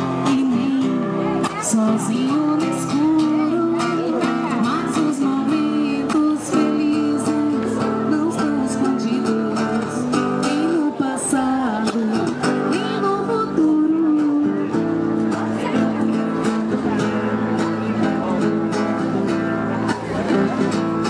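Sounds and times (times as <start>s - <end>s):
acoustic guitar strummed: 0.0s - 21.0s
woman singing: 0.1s - 14.8s.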